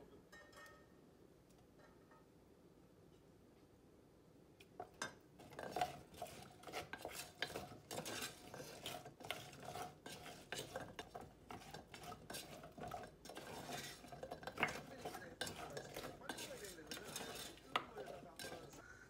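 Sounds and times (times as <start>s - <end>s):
wooden spoon scraping pot: 4.8s - 18.8s.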